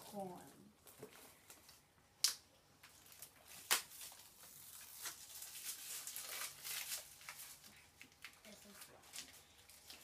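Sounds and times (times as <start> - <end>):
packaging torn open: 2.2 - 10.0
foil wrapper crinkling: 2.8 - 10.0.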